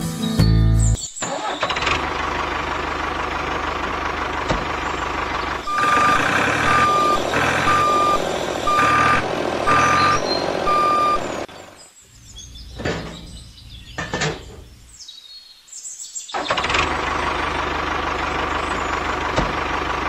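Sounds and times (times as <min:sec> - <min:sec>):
vehicle engine running: 0:01.7 - 0:11.8, 0:16.4 - 0:20.0
reversing alarm beeping: 0:05.6 - 0:11.5.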